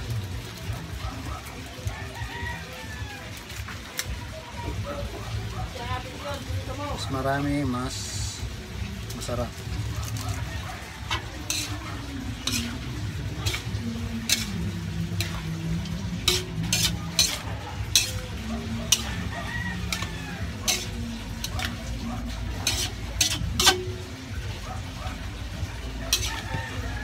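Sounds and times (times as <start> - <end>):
food sizzling: 0.0 - 27.0
metal spatula clanking on wok: 11.0 - 26.8.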